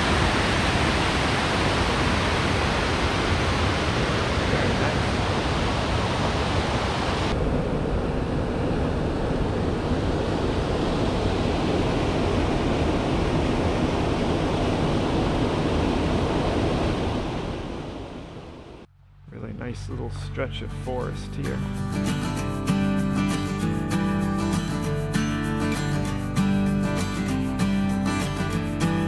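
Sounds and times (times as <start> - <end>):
rushing water: 0.0 - 7.4, 9.3 - 18.8.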